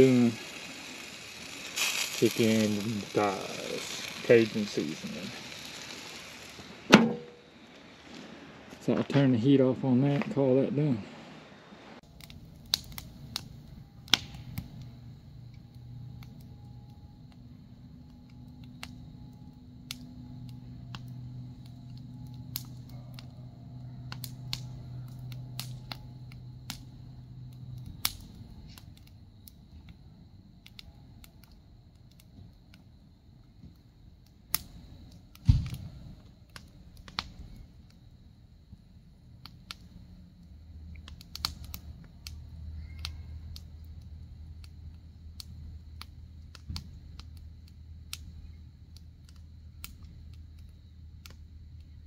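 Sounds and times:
sharp thump: 0:06.9 - 0:07.4, 0:35.4 - 0:35.8
low hum: 0:10.6 - 0:32.2.

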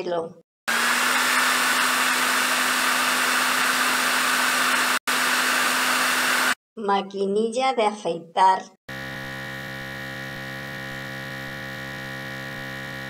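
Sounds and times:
hair dryer blowing: 0:00.7 - 0:06.6, 0:08.9 - 0:13.0.

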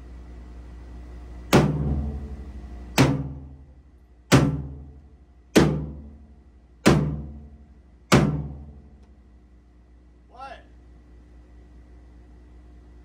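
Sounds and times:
sledgehammer striking steel plate: 0:01.5 - 0:03.6, 0:04.3 - 0:06.2, 0:06.8 - 0:08.8.

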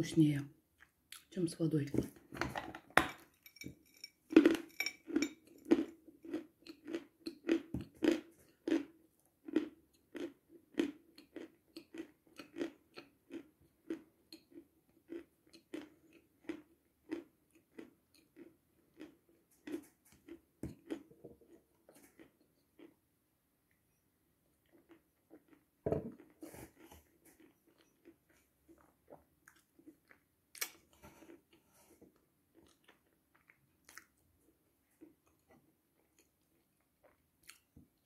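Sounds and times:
person chewing crunchily: 0:04.3 - 0:23.0, 0:24.6 - 0:37.8.

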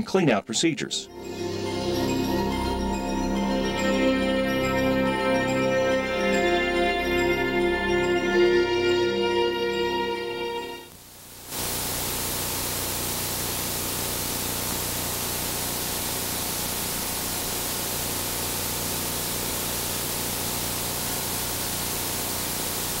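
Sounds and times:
static hiss: 0:09.2 - 0:23.0.

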